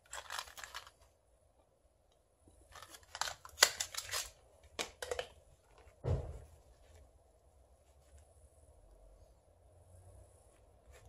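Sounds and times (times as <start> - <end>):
packaging crackling and rustling: 0.0 - 1.1, 2.7 - 5.3.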